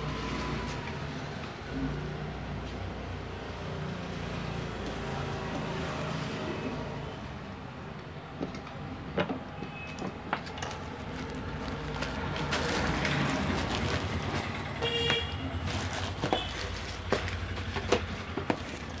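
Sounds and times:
road traffic: 0.0s - 19.0s
vehicle horn toot: 14.8s - 15.5s.

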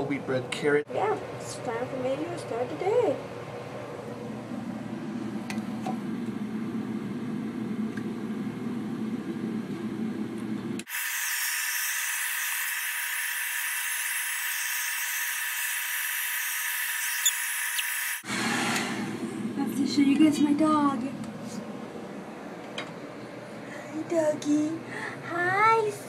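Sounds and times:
hair dryer blowing: 10.8s - 19.2s.

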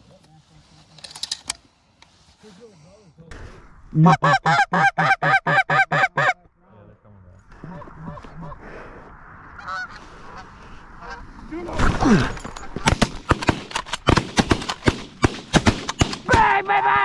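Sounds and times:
geese honking: 4.0s - 6.4s, 7.5s - 8.8s, 9.5s - 11.4s.

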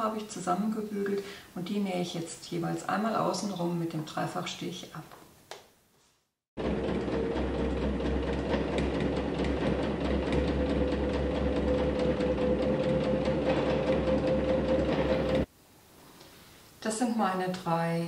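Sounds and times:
sewing machine motor hum: 6.6s - 15.5s
sewing machine stitching: 6.6s - 15.5s.

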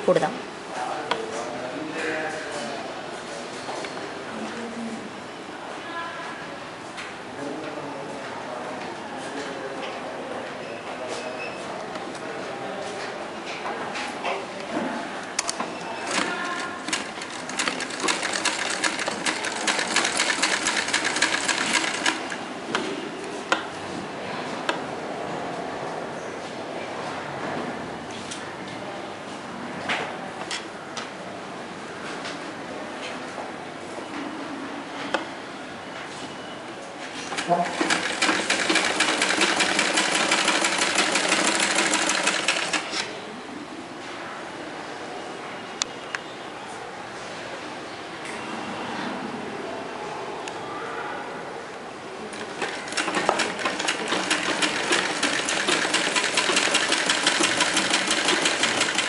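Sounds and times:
sewing machine stitching: 16.1s - 22.4s, 37.2s - 43.1s, 52.3s - 59.0s
sewing machine needle clicks: 52.6s - 59.0s.

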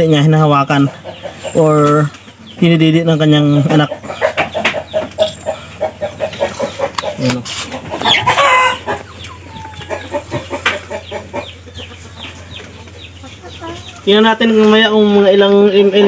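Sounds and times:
chickens clucking: 0.0s - 16.0s
chicken long call: 8.0s - 14.0s.

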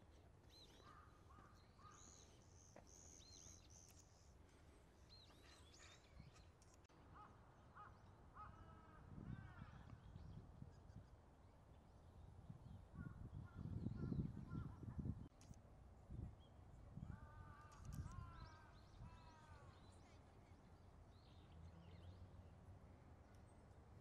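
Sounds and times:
wild birds chirping: 0.0s - 11.2s, 16.4s - 23.8s.

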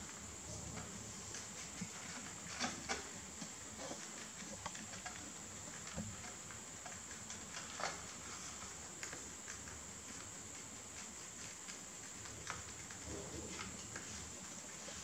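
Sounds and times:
rabbits munching leaves: 0.0s - 15.0s.

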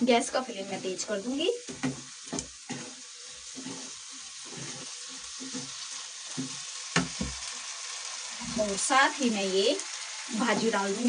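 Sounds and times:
wooden spatula scraping pan: 0.0s - 7.4s, 8.4s - 8.9s, 10.4s - 11.0s
vegetables sizzling in pan: 0.0s - 11.0s.

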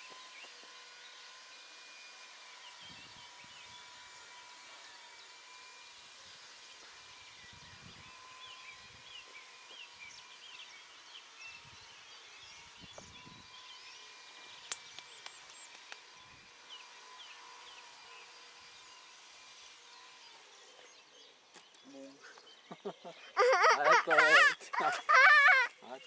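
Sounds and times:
model airplane engine drone: 0.0s - 26.0s
birds chirping and singing: 2.4s - 5.5s, 6.4s - 26.0s
sharp clicks: 14.6s - 16.1s.

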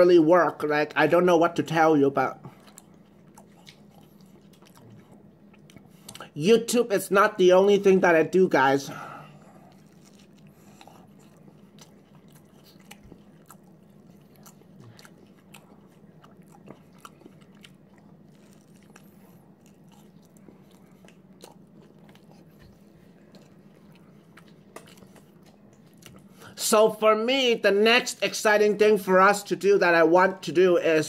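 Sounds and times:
low steady hum: 0.0s - 31.0s
chewing with mouth clicks: 2.4s - 6.4s, 9.4s - 26.6s.

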